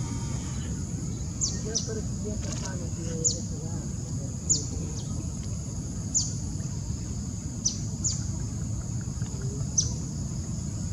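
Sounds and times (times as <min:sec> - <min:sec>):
high-pitched insect chorus: 0:00.0 - 0:10.9.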